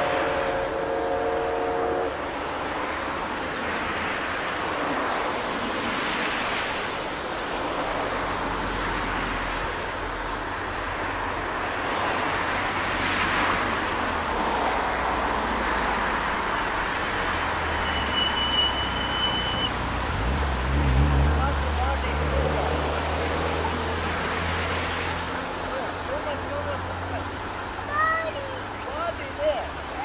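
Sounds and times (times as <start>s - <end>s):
steam train rumble: 0.0s - 3.4s
road traffic: 0.0s - 30.0s
wind: 0.0s - 30.0s
high steady tone: 17.8s - 19.8s.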